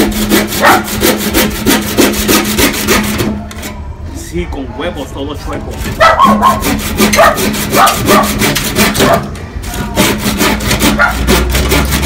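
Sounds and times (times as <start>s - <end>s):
hand saw cutting wood: 0.0s - 3.4s, 5.7s - 12.0s.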